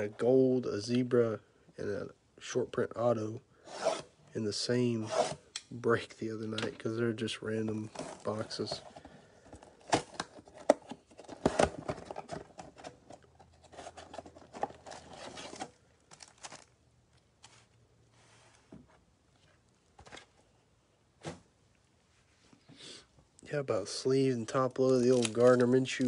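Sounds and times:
foil packs rustling and crinkling: 0:07.8 - 0:12.9, 0:13.6 - 0:16.8, 0:24.5 - 0:26.0.

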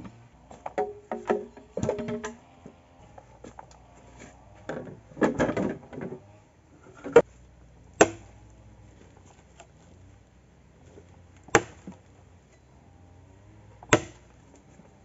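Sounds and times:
axe chopping into log: 0:08.0 - 0:08.3, 0:11.5 - 0:12.0, 0:13.9 - 0:14.3.

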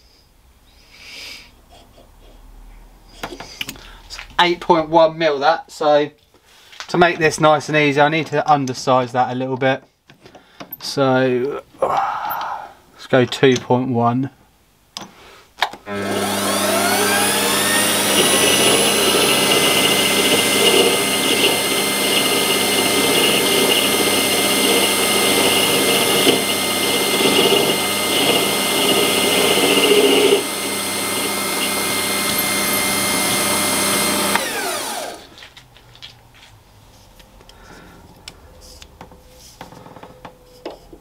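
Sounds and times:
lathe tool cutting brass: 0:15.9 - 0:35.3
lathe motor whine: 0:15.9 - 0:35.4.

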